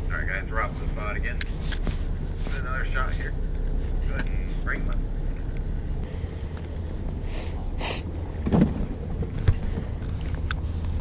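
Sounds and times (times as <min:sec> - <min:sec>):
boat engine rumbling: 0:00.0 - 0:11.0
dull thump: 0:08.4 - 0:09.9.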